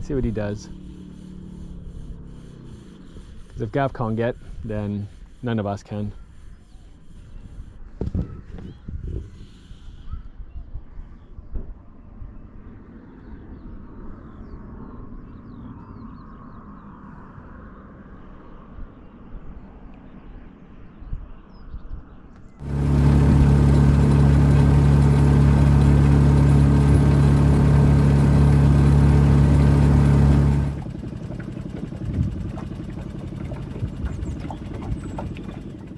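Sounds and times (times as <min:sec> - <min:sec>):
outboard motor running: 0:00.0 - 0:06.4, 0:22.6 - 0:35.9.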